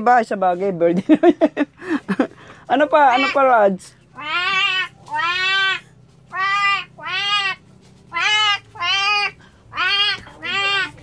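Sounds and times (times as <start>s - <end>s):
boy imitating cat meows: 8.2s - 11.0s.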